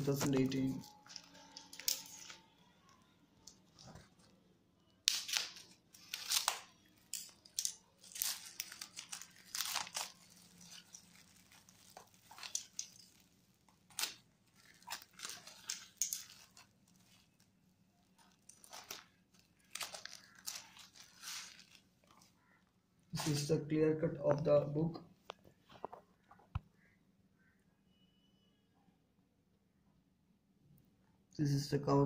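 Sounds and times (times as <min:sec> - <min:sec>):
scissors cutting plastic wrap: 0:00.0 - 0:04.3, 0:05.0 - 0:22.3
plastic wrap tearing and crinkling: 0:00.0 - 0:23.5.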